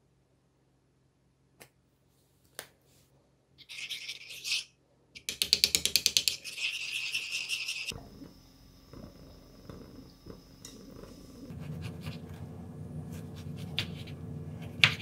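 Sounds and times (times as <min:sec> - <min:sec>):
metal spoon scraping marble bowl: 0:03.6 - 0:04.7, 0:06.1 - 0:08.0.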